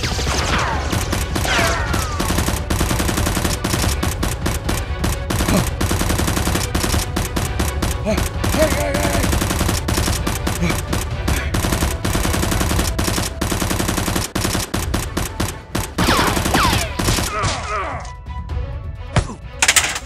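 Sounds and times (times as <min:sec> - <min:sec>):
automatic gunfire sound effects: 0:00.0 - 0:17.3.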